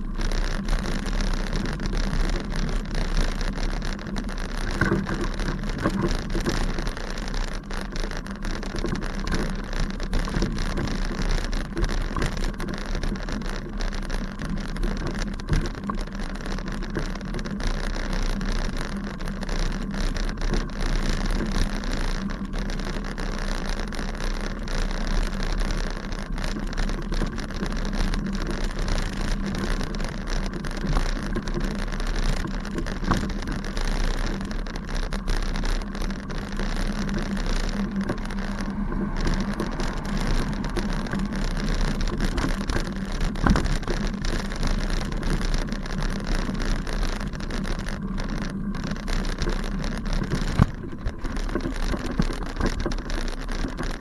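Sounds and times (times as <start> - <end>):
bicycle riding over grass: 0.0 - 54.0.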